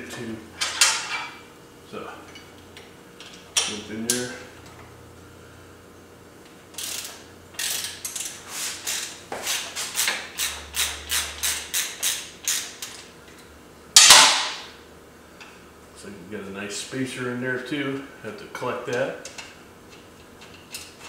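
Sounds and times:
ratchet wrench clicking: 0:06.8 - 0:13.0.

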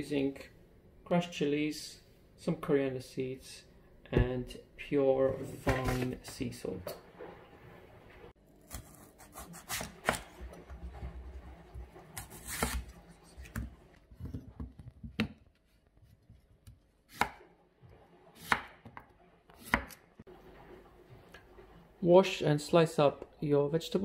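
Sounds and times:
knife slicing vegetable: 0:08.6 - 0:10.9, 0:12.1 - 0:13.7, 0:19.6 - 0:20.0.

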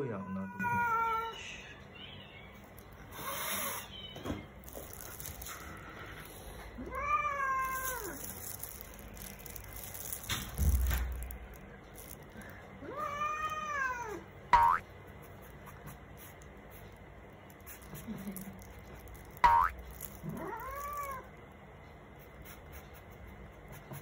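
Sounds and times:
cat meowing: 0:00.0 - 0:02.6, 0:06.8 - 0:08.3, 0:12.8 - 0:14.2, 0:20.2 - 0:21.3.

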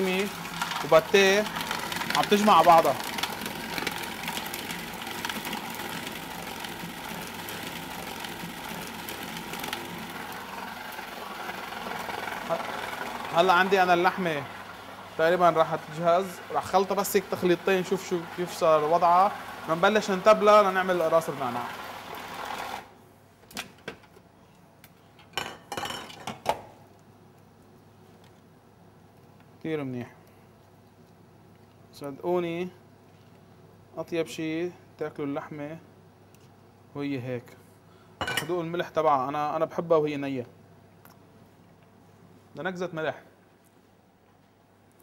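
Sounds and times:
food processor motor running: 0:00.0 - 0:22.9.

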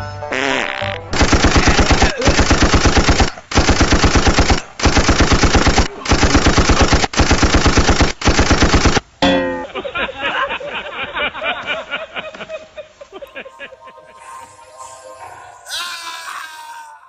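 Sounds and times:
rapid bangs like machine-gun fire: 0:01.2 - 0:09.0.

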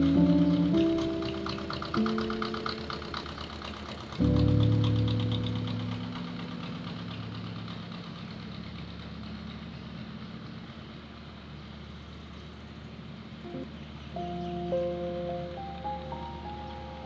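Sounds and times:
generators humming: 0:00.0 - 0:17.0.

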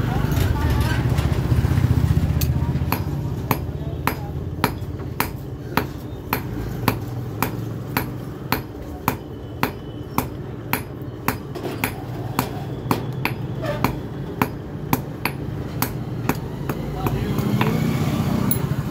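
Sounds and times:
hammer striking metal on anvil: 0:02.9 - 0:17.8.

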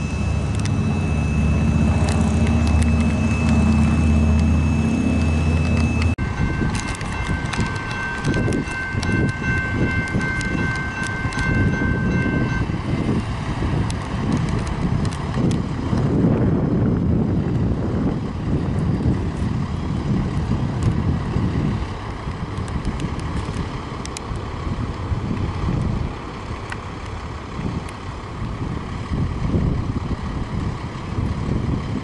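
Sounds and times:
steady high ringing: 0:00.0 - 0:13.3
distant locomotive approaching: 0:00.0 - 0:32.0
wind buffeting microphone: 0:06.0 - 0:32.0.

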